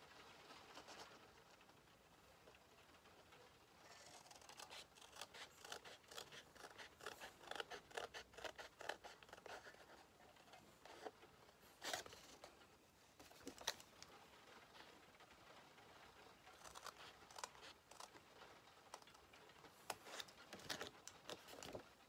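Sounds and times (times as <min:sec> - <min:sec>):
scissors snipping paper: 0:03.9 - 0:10.0, 0:16.5 - 0:18.2, 0:19.9 - 0:21.8.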